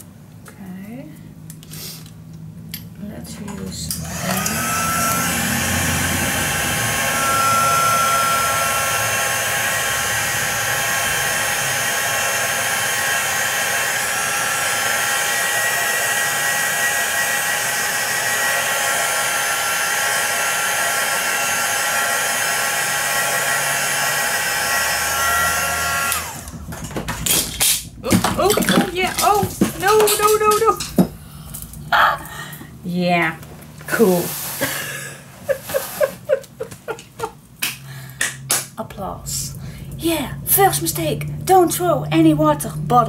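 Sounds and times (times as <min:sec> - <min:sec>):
fan motor whine: 0:00.8 - 0:34.1
heat gun blowing: 0:04.0 - 0:26.7.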